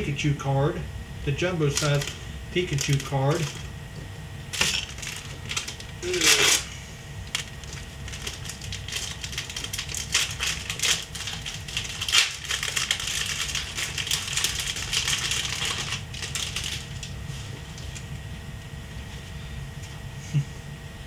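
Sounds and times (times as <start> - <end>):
plastic packaging crinkling: 1.7 - 3.7, 4.5 - 18.0.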